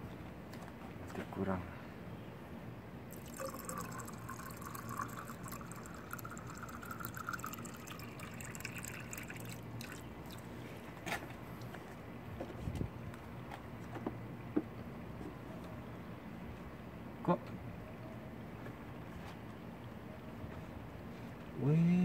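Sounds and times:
water running and trickling: 0:03.1 - 0:10.4.

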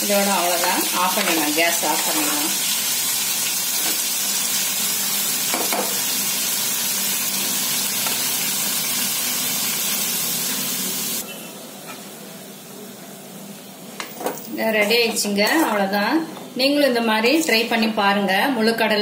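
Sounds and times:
chickpeas sizzling in oil: 0:00.0 - 0:12.2.

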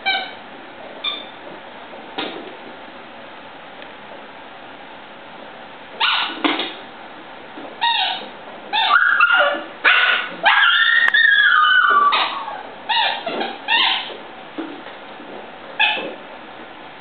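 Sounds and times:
puppies yipping and barking: 0:06.0 - 0:06.4, 0:07.8 - 0:14.2, 0:15.8 - 0:16.2
puppy yelp falling in pitch: 0:08.0 - 0:14.1.

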